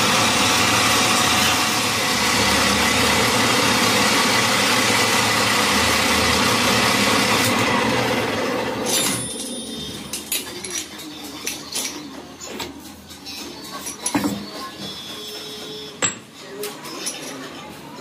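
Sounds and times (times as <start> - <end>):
metal lathe running: 0.0 - 10.8
metallic clinks and knocks: 13.7 - 14.6.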